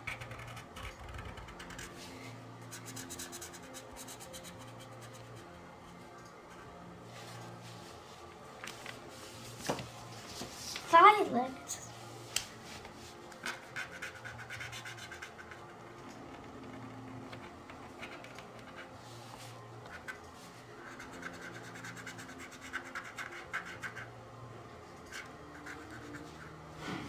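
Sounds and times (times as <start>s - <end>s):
marker scratching on paper: 0.1s - 2.0s, 2.7s - 5.5s, 13.5s - 15.7s, 20.8s - 24.1s, 25.1s - 26.5s.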